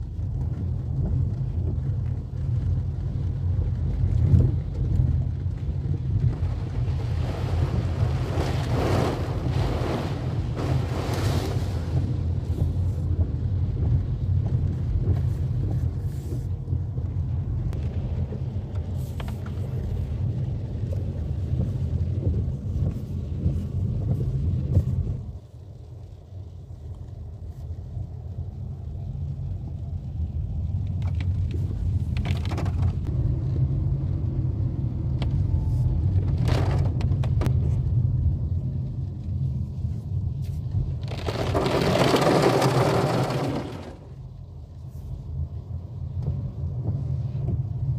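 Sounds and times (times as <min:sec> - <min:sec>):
car rumble in heavy rain: 0:00.0 - 0:47.9
water hissing against car: 0:06.6 - 0:13.2.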